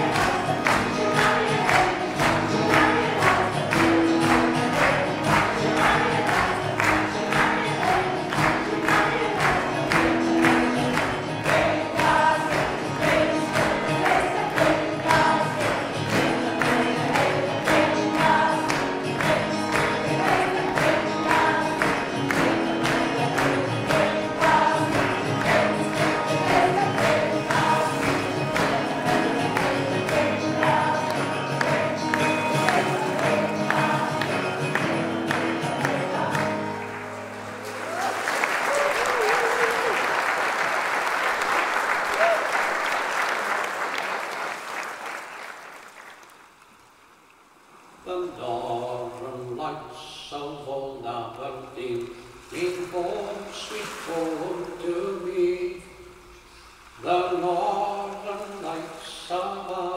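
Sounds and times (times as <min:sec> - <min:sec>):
choir singing: 0:00.0 - 0:37.6.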